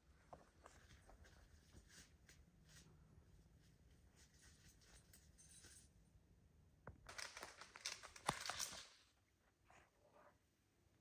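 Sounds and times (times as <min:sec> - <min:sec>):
faint rustling and crackling: 0:00.1 - 0:06.0.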